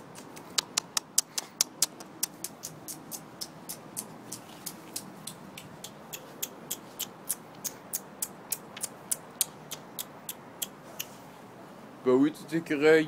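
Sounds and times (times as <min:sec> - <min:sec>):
squirrel chirping: 0:02.2 - 0:11.2.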